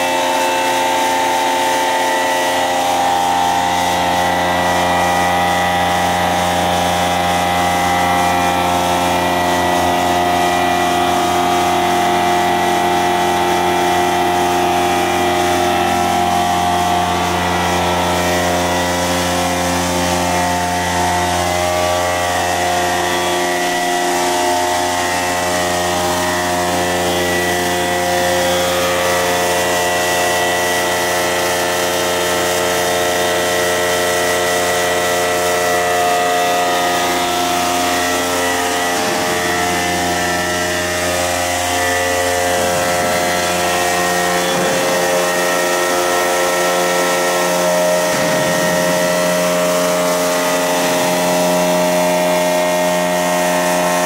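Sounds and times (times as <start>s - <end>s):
machine hum: 0.0s - 54.0s
steady tones: 36.4s - 51.4s.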